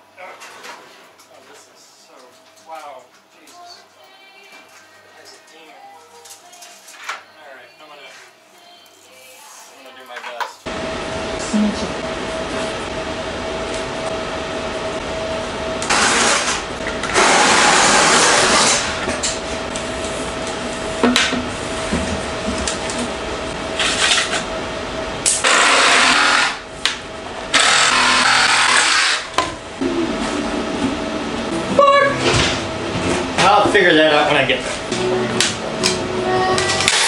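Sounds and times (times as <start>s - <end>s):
power saw cutting plastic pipe: 15.8s - 19.1s, 25.3s - 26.6s, 27.5s - 29.4s, 36.6s - 37.0s.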